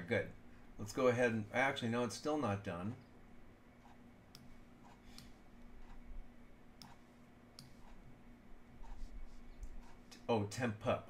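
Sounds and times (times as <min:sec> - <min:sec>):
faint steady hum: 0:00.0 - 0:11.0
computer mouse clicks: 0:06.8 - 0:07.0, 0:07.6 - 0:08.0.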